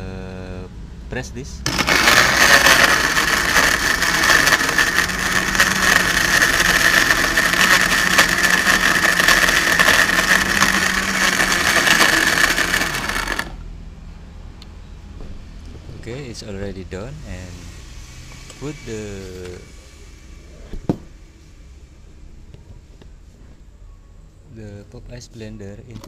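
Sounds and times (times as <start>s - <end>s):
blender motor whine: 1.7s - 13.6s
ice rattling in blender: 1.7s - 13.6s.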